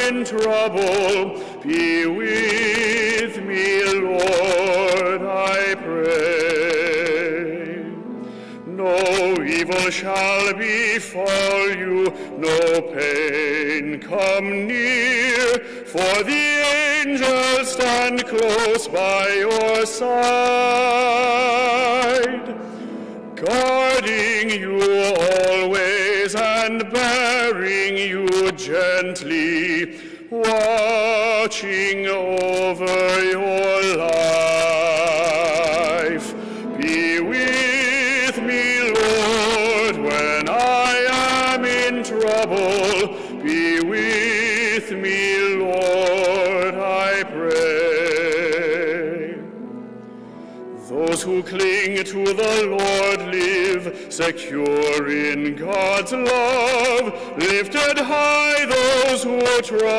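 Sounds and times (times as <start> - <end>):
man singing solo: 0.0 - 49.6, 50.8 - 59.9.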